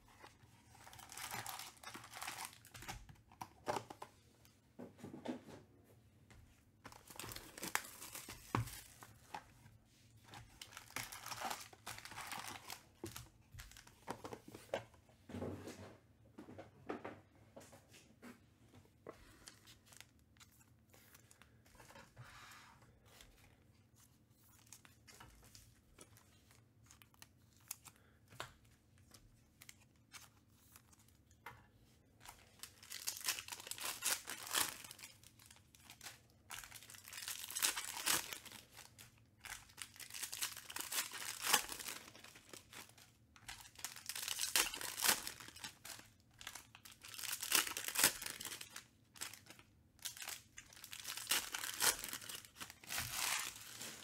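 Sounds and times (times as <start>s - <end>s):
foil wrappers crinkling and tearing: 0.7s - 3.0s, 10.5s - 13.9s, 32.4s - 54.0s.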